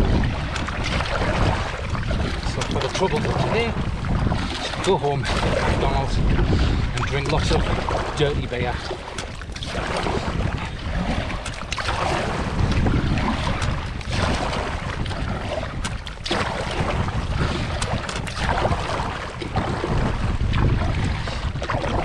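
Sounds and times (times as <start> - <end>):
kayak paddle splashing: 0.0 - 22.0
wind buffeting microphone: 0.0 - 22.0.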